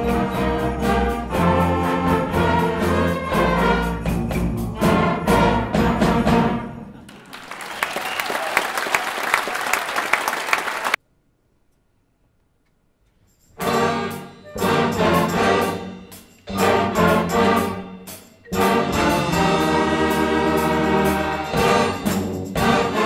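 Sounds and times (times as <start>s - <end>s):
concert band playing: 0.0s - 7.0s, 13.6s - 23.0s
audience applause: 7.1s - 11.0s.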